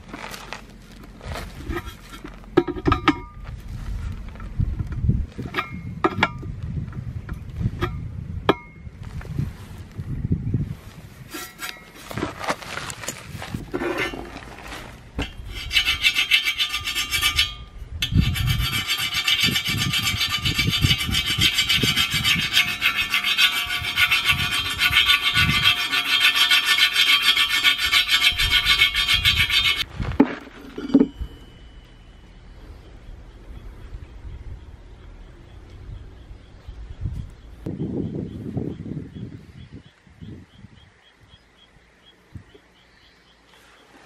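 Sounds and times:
metal scraping on steel wheel: 0.0 - 6.5, 11.2 - 32.4.

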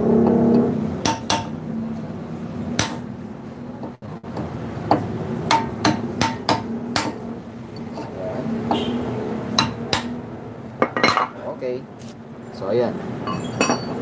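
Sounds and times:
hammer tapping on steel hub: 4.3 - 7.2, 9.6 - 10.2.

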